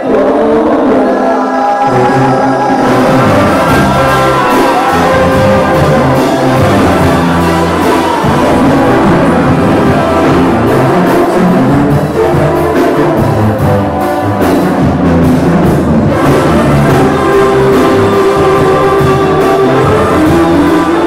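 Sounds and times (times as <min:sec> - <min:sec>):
brass band playing: 0:00.0 - 0:21.0.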